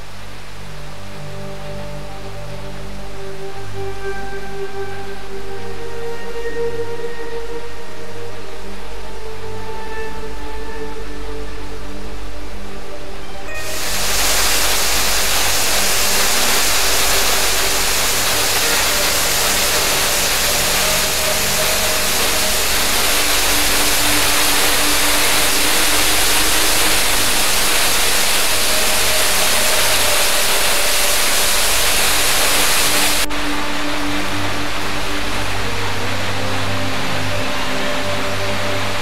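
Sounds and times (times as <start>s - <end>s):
waterfall rushing: 13.1s - 39.0s.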